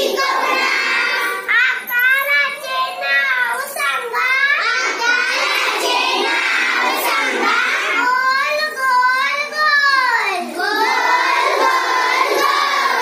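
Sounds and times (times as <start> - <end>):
girls singing together: 0.0 - 1.5, 4.4 - 13.0.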